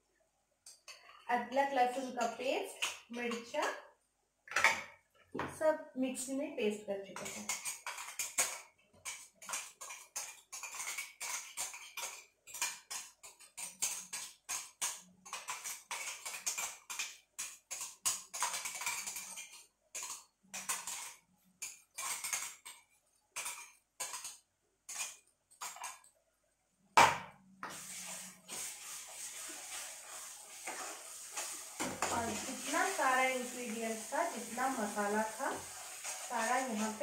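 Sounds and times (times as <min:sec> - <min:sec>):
metal spoon scraping a jar: 0:07.2 - 0:22.8, 0:23.4 - 0:26.0.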